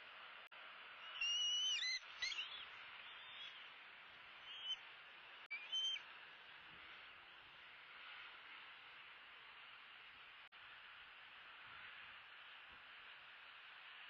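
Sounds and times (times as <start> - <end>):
steady hiss: 0.0 - 14.0
eaglets calling: 1.0 - 3.7, 4.4 - 4.8, 5.5 - 6.0.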